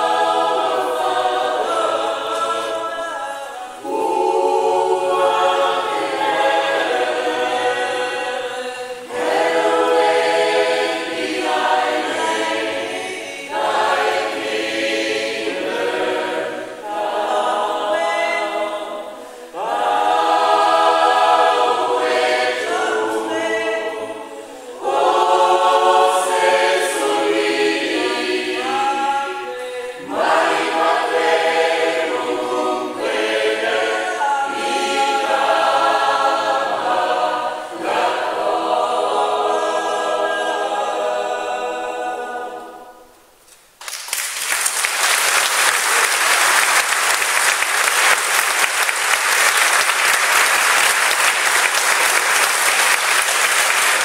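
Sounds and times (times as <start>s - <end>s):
choir singing: 0.0s - 43.4s, 44.8s - 54.0s
audience applause: 43.8s - 54.0s.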